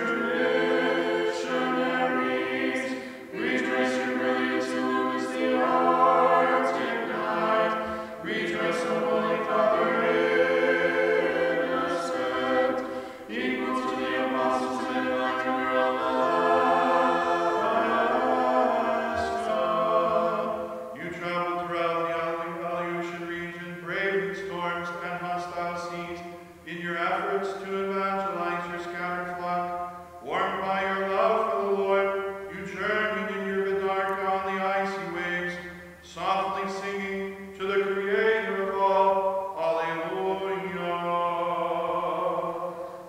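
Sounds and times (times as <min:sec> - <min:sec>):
group singing a cappella chant: 0:00.0 - 0:22.4, 0:36.2 - 0:43.0.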